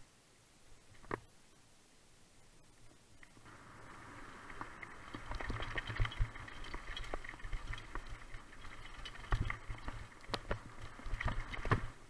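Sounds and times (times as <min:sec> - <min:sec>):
bike tyre noise on dirt: 0:03.3 - 0:12.0
bike rattling over bumps: 0:03.6 - 0:12.0.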